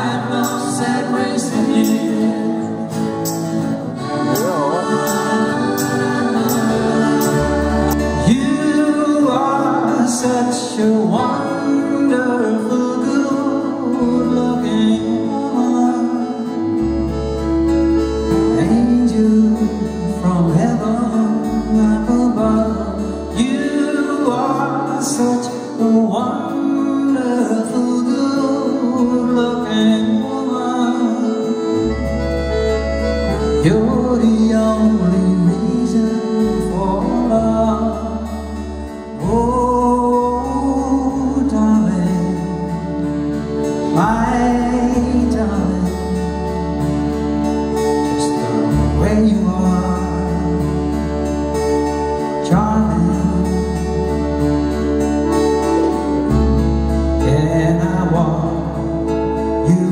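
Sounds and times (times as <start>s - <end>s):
man singing: 0.0s - 3.3s, 3.9s - 17.5s, 18.3s - 46.8s, 47.8s - 59.9s
live band playing pop song: 0.0s - 59.9s.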